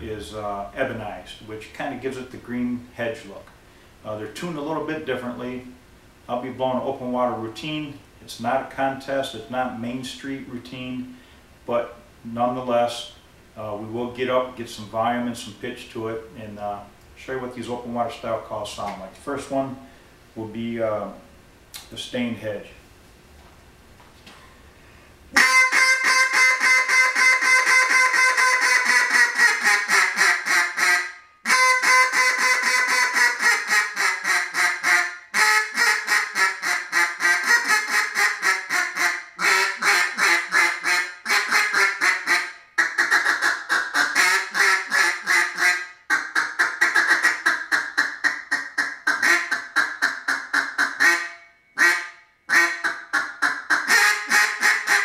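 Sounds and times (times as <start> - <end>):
duck call quacking: 25.4 - 55.0.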